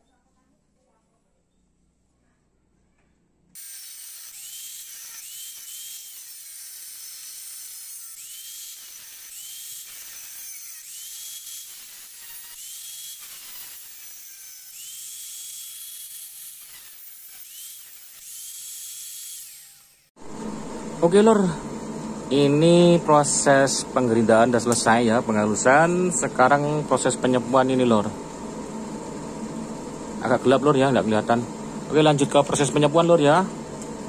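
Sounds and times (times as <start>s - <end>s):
angle grinder grinding metal: 3.6s - 20.2s.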